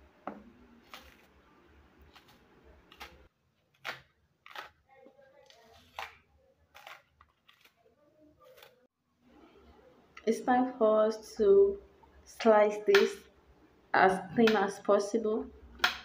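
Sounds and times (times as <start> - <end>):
knife scraping plantain peel: 0.7 - 1.4, 2.0 - 8.9.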